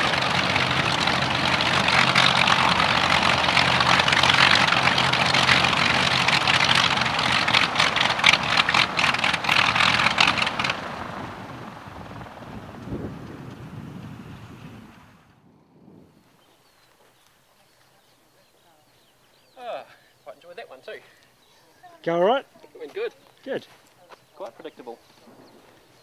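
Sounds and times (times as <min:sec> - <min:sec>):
engines crackling: 0:00.0 - 0:15.4
radial aircraft engines humming: 0:00.0 - 0:26.0.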